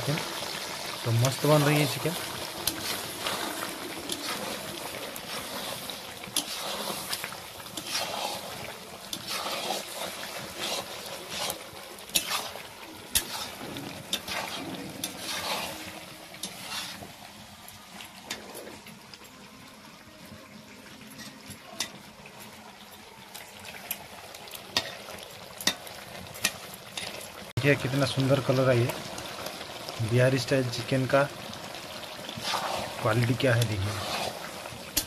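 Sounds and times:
curry sizzling in a pan: 0:00.0 - 0:35.0
metal spatula scraping a pan: 0:00.4 - 0:17.3, 0:17.9 - 0:19.0, 0:21.1 - 0:22.0, 0:24.7 - 0:27.2, 0:31.7 - 0:35.0.

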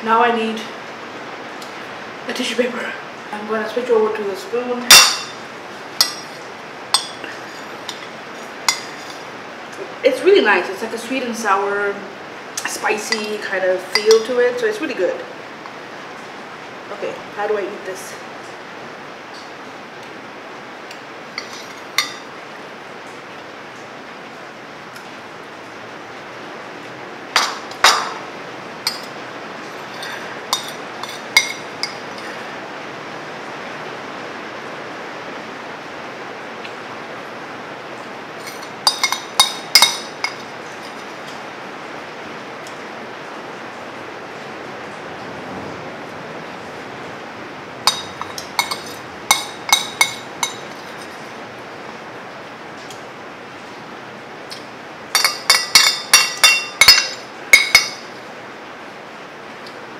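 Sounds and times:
steady background hiss: 0:00.0 - 0:59.9
spoon clinking on ceramic plate: 0:04.9 - 0:05.4, 0:06.0 - 0:09.2, 0:21.4 - 0:22.3, 0:27.4 - 0:28.2, 0:28.8 - 0:32.4, 0:38.4 - 0:41.0, 0:47.9 - 0:51.2, 0:55.1 - 0:58.1.

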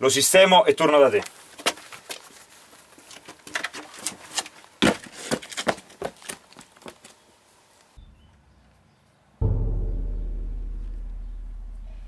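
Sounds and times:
running footsteps on stone: 0:04.8 - 0:07.2.

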